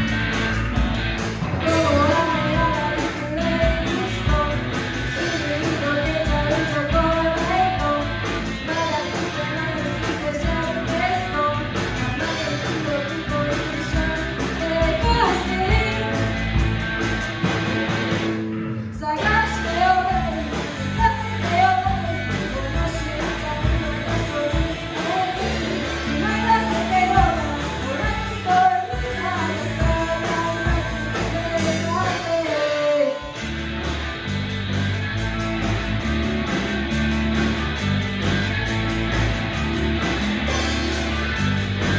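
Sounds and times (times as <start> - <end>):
rock band playing: 0.0 - 41.9
woman singing into a microphone: 1.6 - 16.2, 18.8 - 33.3.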